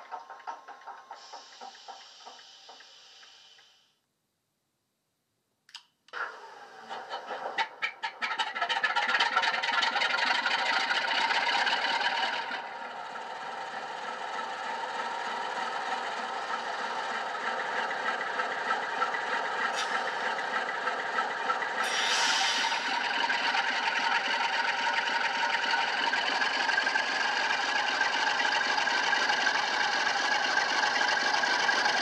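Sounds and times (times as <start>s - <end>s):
air hiss: 1.2s - 4.0s, 21.8s - 22.9s
clicks: 5.7s - 6.0s
diesel engine sound from small speaker: 6.2s - 32.0s.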